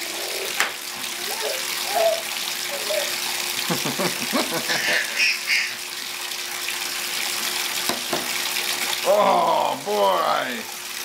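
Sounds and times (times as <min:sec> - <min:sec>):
water splashing into bathtub: 0:00.0 - 0:11.0.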